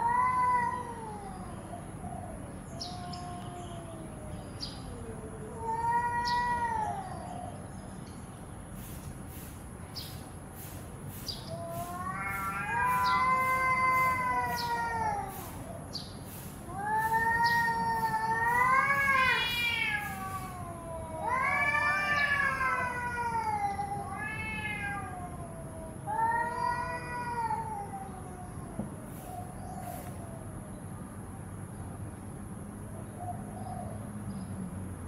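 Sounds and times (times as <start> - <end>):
cats yowling: 0.0 - 7.7, 11.4 - 30.5.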